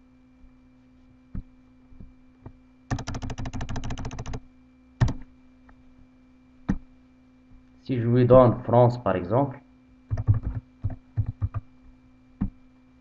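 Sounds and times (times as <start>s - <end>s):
keyboard keys clicking: 2.9s - 4.4s, 5.0s - 5.2s, 10.1s - 11.6s.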